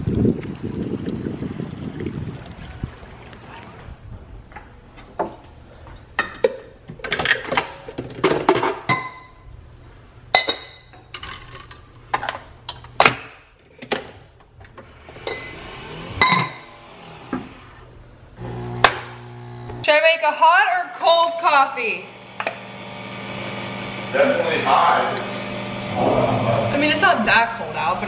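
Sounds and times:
glassware clinking: 8.9s - 9.4s, 10.3s - 11.8s, 15.2s - 15.6s, 16.2s - 16.7s.

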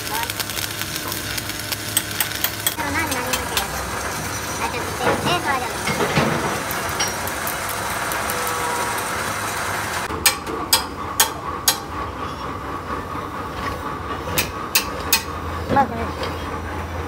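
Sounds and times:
welding arc crackling: 0.0s - 10.4s.

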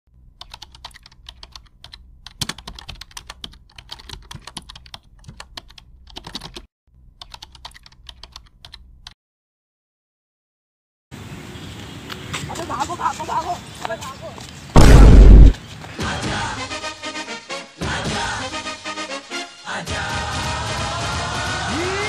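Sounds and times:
keyboard typing clicks: 0.4s - 9.2s.

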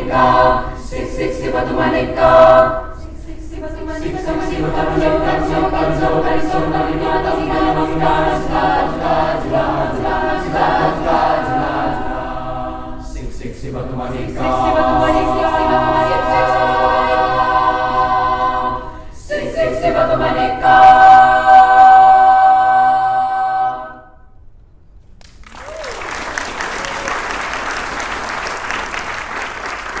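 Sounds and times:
children's choir singing: 0.0s - 24.2s
audience applauding: 25.2s - 30.0s.

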